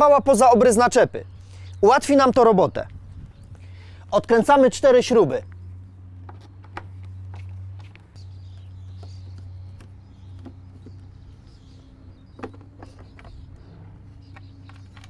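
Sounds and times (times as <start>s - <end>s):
steady low hum: 0.1s - 15.0s.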